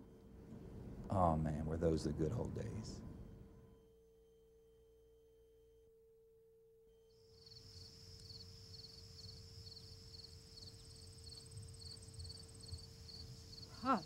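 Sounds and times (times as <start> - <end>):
faint steady hum: 0.0 - 14.0
cricket chirps: 6.9 - 14.0
insects trilling: 7.1 - 14.0.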